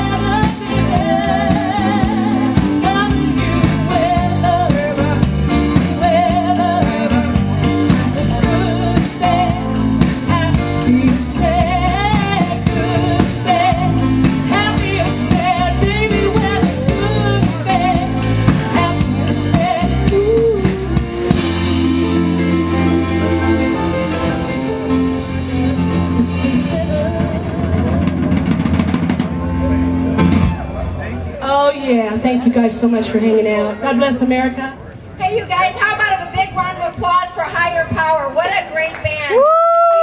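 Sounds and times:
person singing: 0:00.0 - 0:28.7
live band playing: 0:00.0 - 0:40.0.

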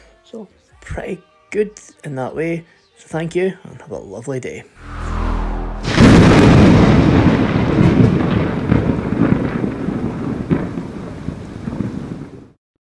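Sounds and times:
thunder-like rumble with crackle: 0:05.8 - 0:12.6.

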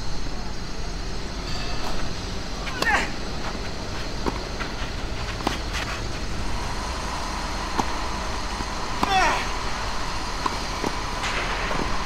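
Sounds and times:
low background rumble: 0:00.0 - 0:12.0
racket hitting tennis ball: 0:04.2 - 0:06.2, 0:07.1 - 0:12.0.

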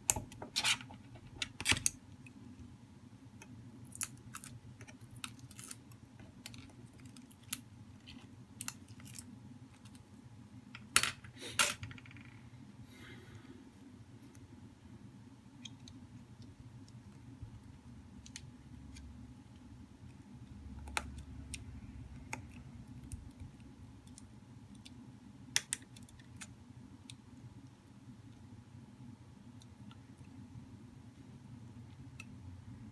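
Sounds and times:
steady low hum: 0:12.4 - 0:32.9.

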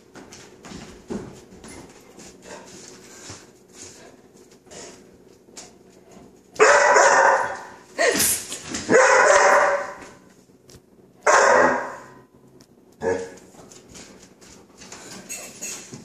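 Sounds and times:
puppy barking: 0:06.6 - 0:07.8, 0:08.9 - 0:10.2, 0:11.2 - 0:12.2.

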